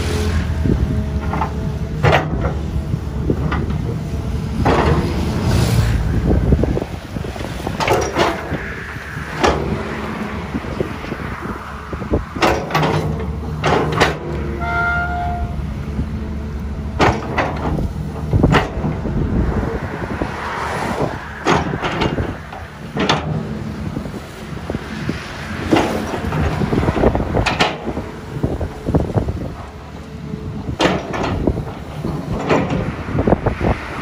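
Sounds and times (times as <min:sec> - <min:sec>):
diesel engine under load: 0:00.0 - 0:34.0
excavator bucket clanking: 0:00.8 - 0:05.6, 0:06.2 - 0:08.6, 0:09.3 - 0:11.2, 0:12.1 - 0:15.6, 0:16.8 - 0:19.4, 0:21.3 - 0:33.7
brief high tone: 0:14.6 - 0:15.6.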